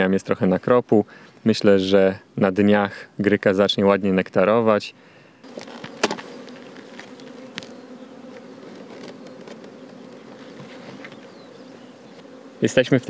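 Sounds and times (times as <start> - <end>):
honey bees buzzing: 5.0 - 13.0.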